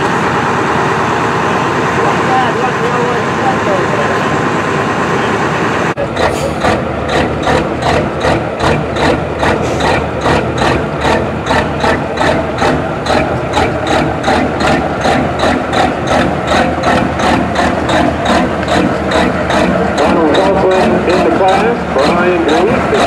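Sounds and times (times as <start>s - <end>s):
diesel truck engine idling: 0.0s - 23.0s.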